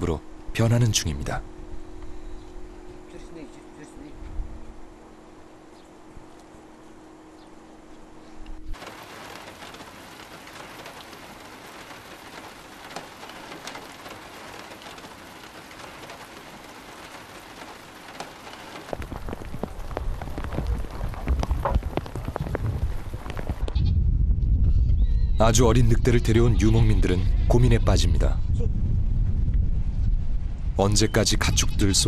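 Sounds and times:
rain falling and dripping: 8.7 - 23.8
low rumble with knocks: 8.7 - 25.3, 28.5 - 30.8.

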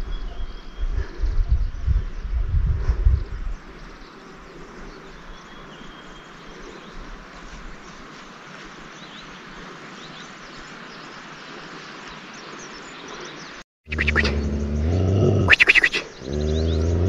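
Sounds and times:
rushing outdoor noise: 2.6 - 17.0
faint high bird chirps: 13.9 - 17.0.

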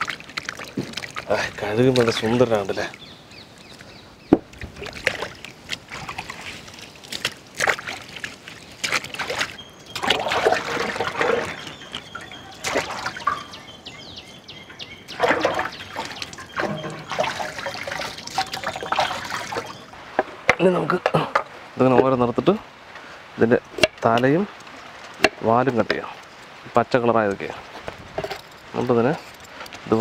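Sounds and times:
water sloshing in a metal pot: 0.0 - 3.0, 4.5 - 13.6, 15.1 - 22.2.

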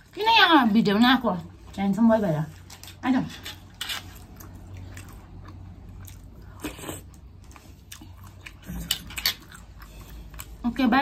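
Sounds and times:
person chewing noodles: 3.6 - 10.6.

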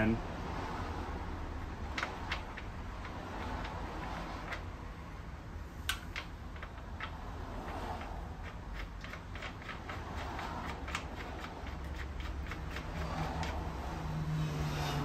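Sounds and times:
nut threading metallic clicks: 1.9 - 4.7, 5.8 - 13.6.

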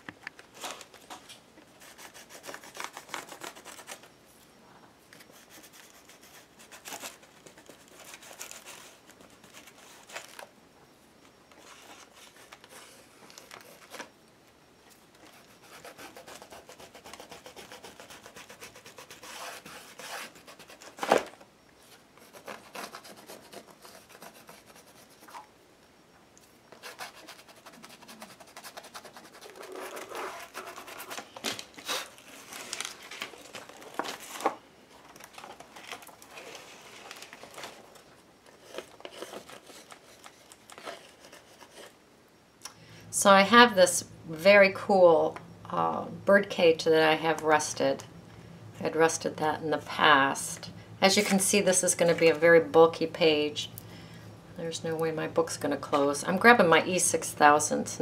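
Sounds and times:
pencil scribbling on paper: 15.3 - 20.8, 22.2 - 25.4, 26.8 - 31.1.

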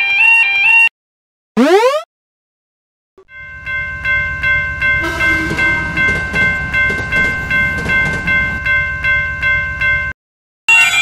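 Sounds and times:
crossing warning bell ringing: 3.3 - 11.0
train rumbling past: 3.5 - 10.1.

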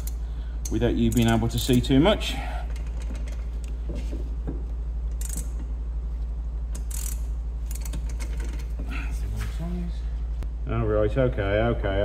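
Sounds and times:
ratchet clicking: 0.0 - 1.9, 5.1 - 5.7, 6.7 - 8.8
steady low hum: 0.0 - 12.0.

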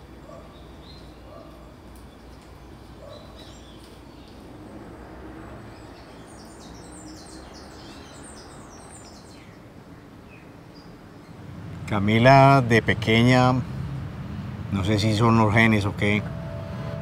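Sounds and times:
faint birds chirping: 0.0 - 17.0
low steady hum: 11.3 - 17.0.

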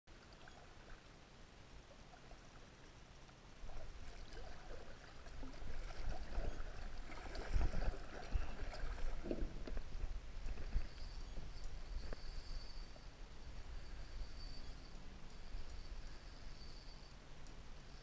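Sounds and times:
water lapping against kayak hull: 3.6 - 12.2.

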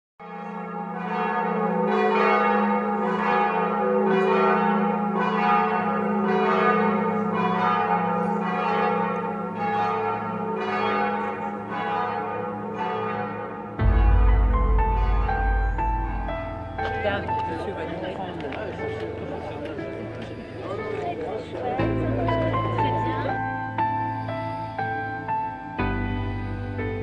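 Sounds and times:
church bells ringing: 0.2 - 26.6
music with heavy bass: 13.8 - 17.3.

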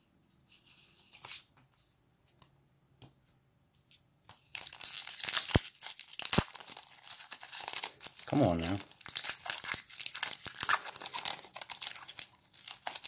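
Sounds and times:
foil wrapper crinkling and tearing: 4.4 - 13.0.

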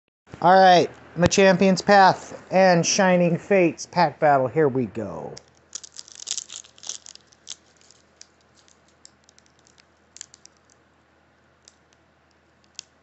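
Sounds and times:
foil wrapper crinkling: 5.4 - 10.8.

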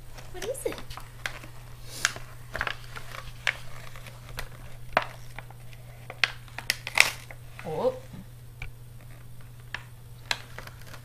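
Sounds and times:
paper bag rustling: 0.0 - 8.1, 10.3 - 11.0.

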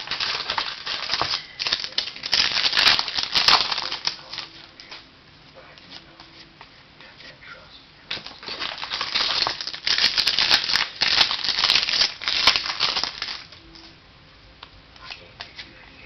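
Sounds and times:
foil wrapper crinkling: 0.0 - 5.0, 8.1 - 13.6.

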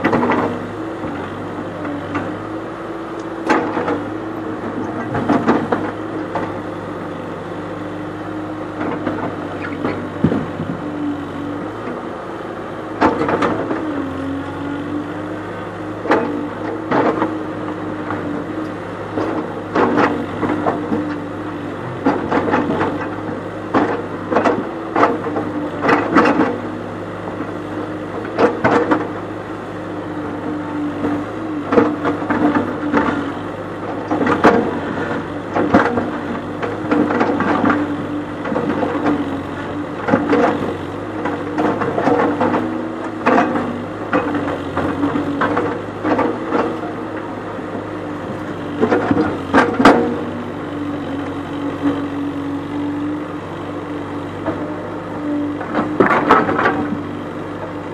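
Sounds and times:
diesel engine running: 0.0 - 57.9.

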